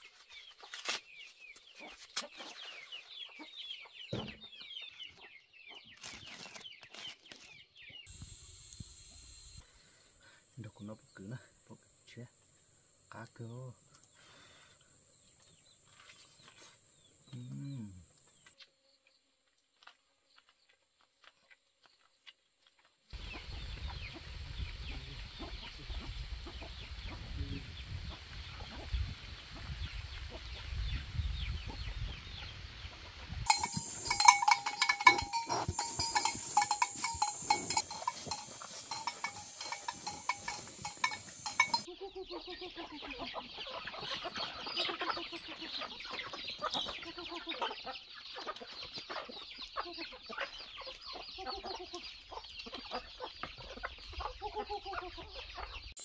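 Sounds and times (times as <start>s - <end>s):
chickens clucking: 1.6s - 6.1s, 23.2s - 30.8s, 31.4s - 55.9s
cattle moving about: 33.4s - 41.9s
rapid metallic clanking: 33.5s - 41.9s.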